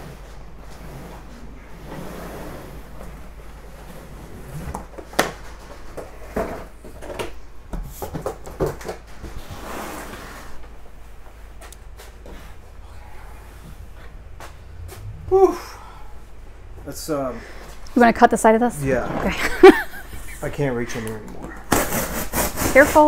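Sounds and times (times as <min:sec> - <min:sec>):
cardboard scrape: 0:21.7 - 0:23.0.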